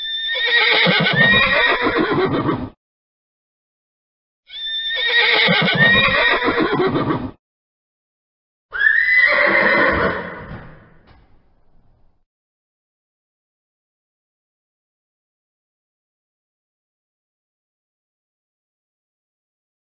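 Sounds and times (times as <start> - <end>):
horse whinnying: 0.0 - 2.8, 4.5 - 7.4, 8.7 - 11.0.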